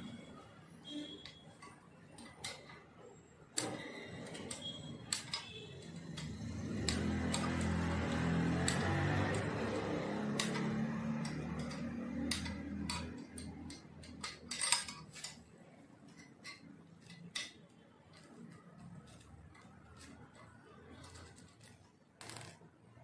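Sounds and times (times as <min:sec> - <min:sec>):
allen key clinking on screws: 0:10.4 - 0:15.5.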